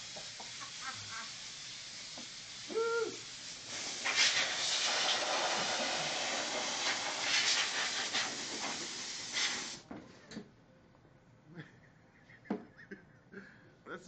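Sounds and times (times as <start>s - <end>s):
compressed air hissing: 0.0s - 9.9s.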